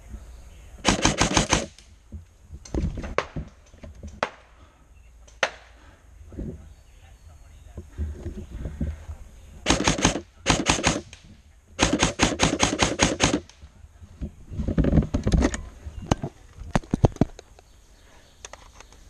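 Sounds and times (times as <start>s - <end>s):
airsoft rifle firing: 0.8s - 1.9s, 9.6s - 13.6s.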